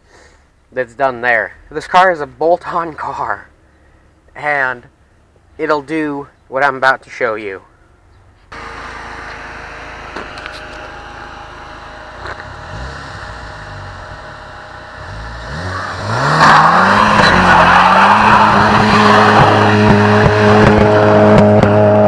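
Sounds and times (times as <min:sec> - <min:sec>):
car engine revving: 0:08.5 - 0:22.0
tires spinning on gravel: 0:08.6 - 0:22.0.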